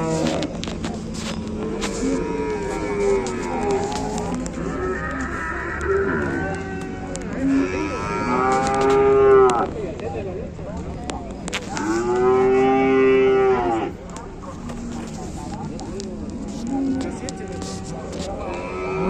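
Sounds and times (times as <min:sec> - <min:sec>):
cattle mooing: 0:00.0 - 0:00.5, 0:01.5 - 0:09.7, 0:11.7 - 0:14.0, 0:18.4 - 0:19.0.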